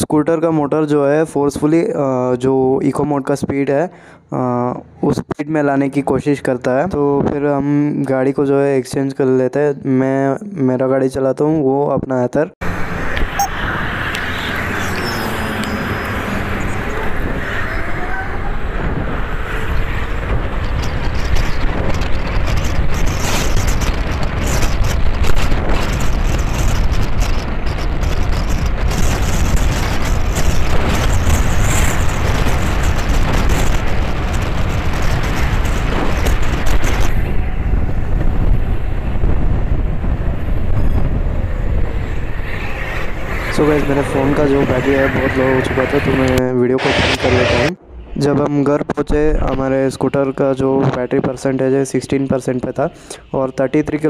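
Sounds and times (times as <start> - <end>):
wind rushing on microphone: 5.0 - 7.8, 12.6 - 54.0
road and tyre noise: 12.6 - 54.0.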